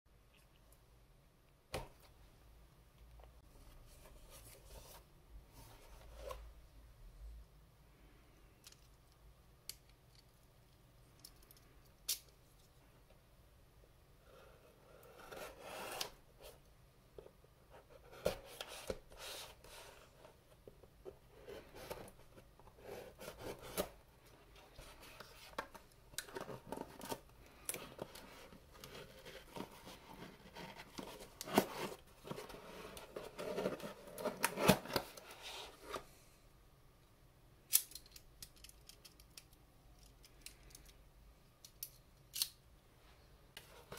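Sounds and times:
paper and cardboard rustling: 17.9s - 36.1s.

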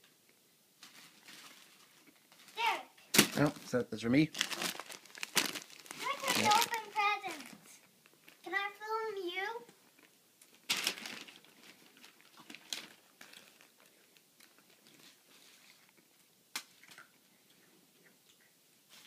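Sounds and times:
wrapping paper crinkling: 0.8s - 8.5s, 10.0s - 16.0s.

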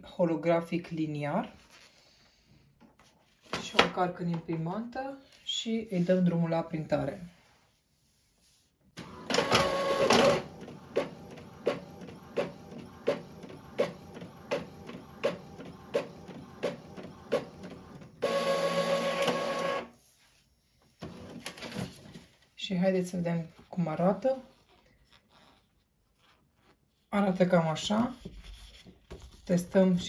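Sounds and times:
printer clicking: 9.0s - 19.9s
printer feed whir: 9.0s - 19.9s.

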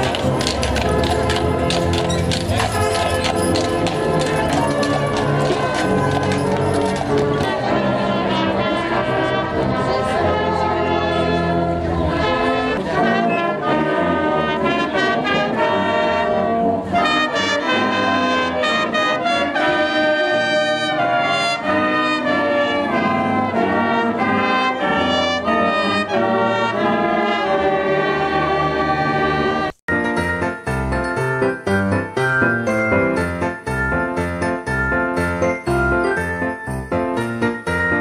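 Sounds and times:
wind band playing christmas music: 0.0s - 38.0s.

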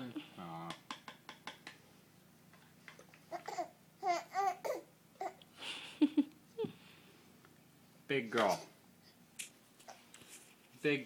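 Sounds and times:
baby babbling: 3.3s - 5.4s.

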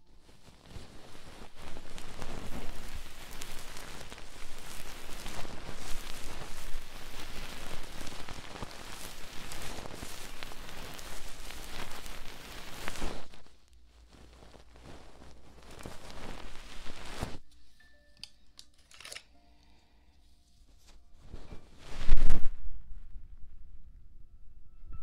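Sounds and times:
faint noise: 0.0s - 25.0s
scratching and rubbing on microphone: 0.1s - 17.4s, 20.7s - 23.2s.

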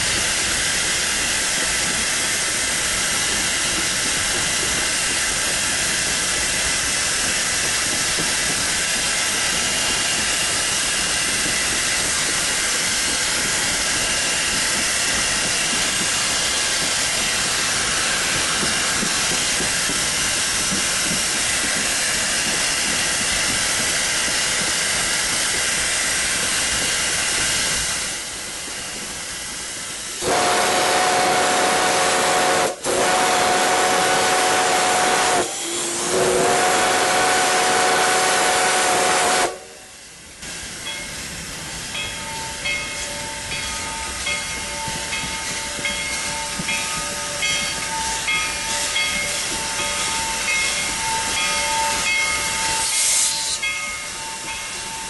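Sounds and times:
steam hissing: 0.0s - 55.0s
steam whistle blasts: 30.2s - 40.0s, 51.3s - 53.8s.

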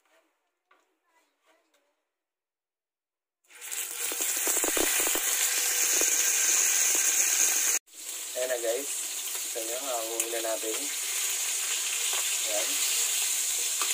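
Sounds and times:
fish sizzling in hot oil: 3.5s - 13.9s.

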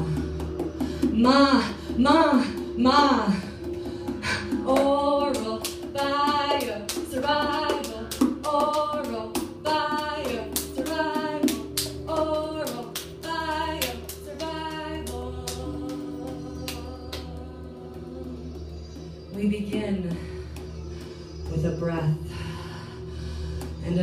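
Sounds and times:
regular tapping beat: 0.0s - 21.8s
steady held drone: 0.0s - 24.0s
woman singing wordless phrases: 1.1s - 3.7s, 4.4s - 20.4s.

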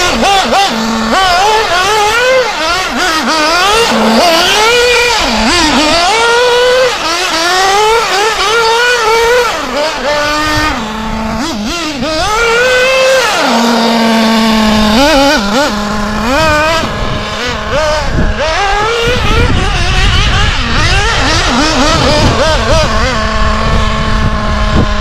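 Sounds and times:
model engine revving: 0.0s - 25.0s.

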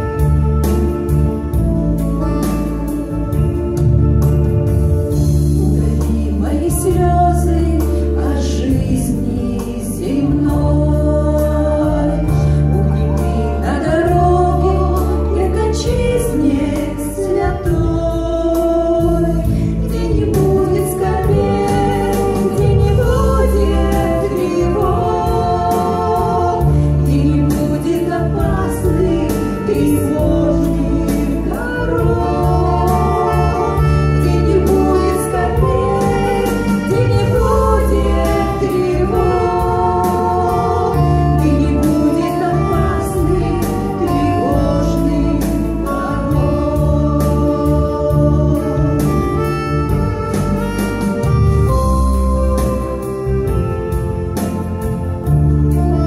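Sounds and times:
instrumental accompaniment: 0.0s - 56.0s
women singing into microphones: 5.2s - 50.0s.

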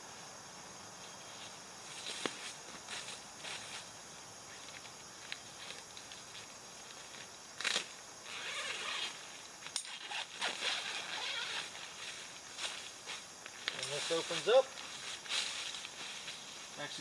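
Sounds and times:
tent fabric rustling: 5.6s - 9.2s, 9.8s - 16.7s
dry leaves crunching underfoot: 11.6s - 16.8s.

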